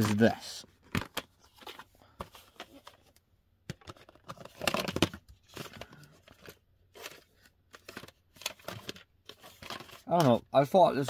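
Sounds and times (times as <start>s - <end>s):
plastic case clicks and scraping: 0.8s - 10.4s.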